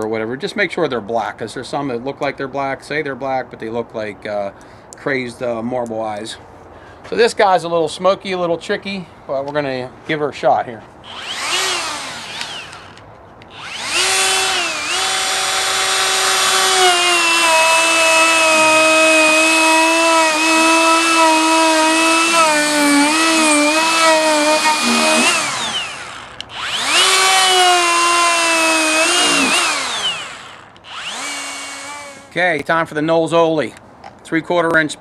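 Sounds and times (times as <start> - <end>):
electric drill whining: 11.1 - 32.3.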